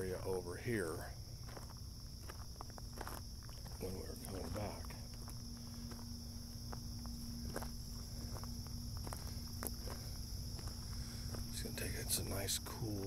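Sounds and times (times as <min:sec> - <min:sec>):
crickets chirring: 0:00.0 - 0:13.0
soft footsteps: 0:00.1 - 0:12.8.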